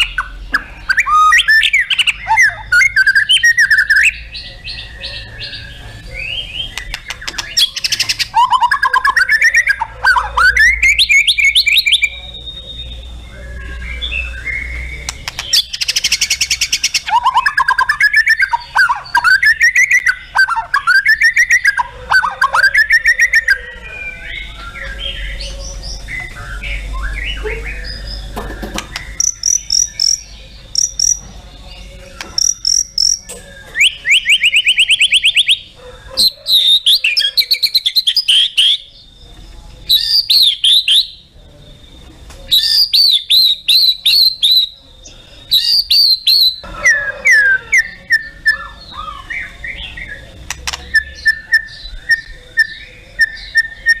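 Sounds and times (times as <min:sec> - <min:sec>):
bird singing varied song: 0:00.0 - 0:54.0.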